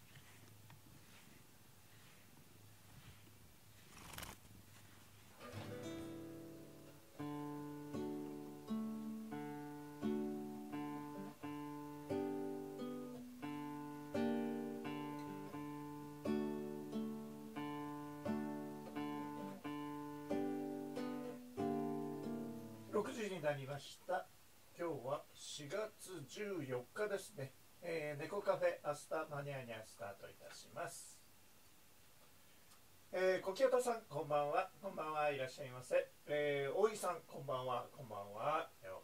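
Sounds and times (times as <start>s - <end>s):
acoustic guitar picking: 5.4s - 23.0s.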